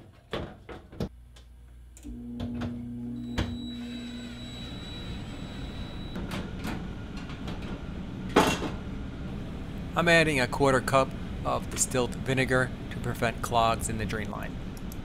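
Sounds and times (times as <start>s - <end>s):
blower motor humming: 2.0s - 6.2s.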